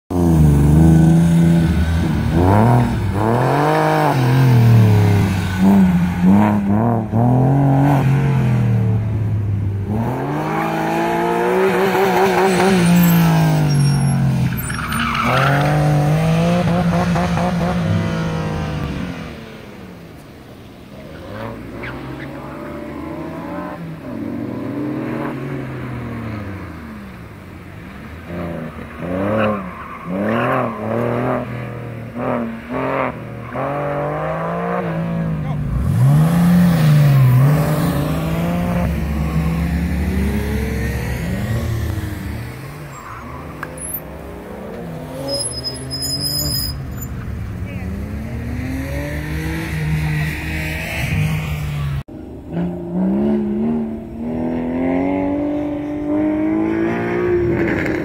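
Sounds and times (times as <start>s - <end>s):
car engine revving: 0.1s - 20.0s, 20.9s - 58.0s
tire squeal: 11.8s - 16.9s, 21.0s - 23.1s, 28.3s - 34.4s, 41.2s - 44.2s, 44.8s - 47.3s.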